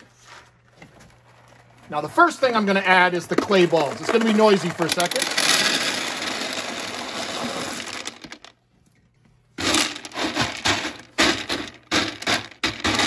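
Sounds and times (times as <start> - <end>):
hand scraping pellets: 1.2 - 8.5, 9.6 - 13.0
clay pellets pouring onto glass: 3.8 - 8.5.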